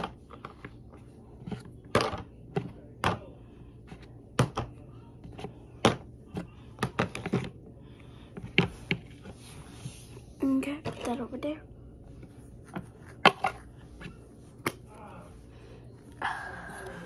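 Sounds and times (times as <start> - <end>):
plastic containers clicking and knocking: 5.3 - 7.6.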